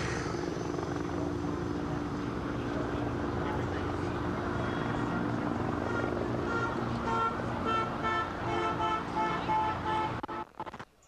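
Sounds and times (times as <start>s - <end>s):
traffic rumble: 0.0s - 11.0s.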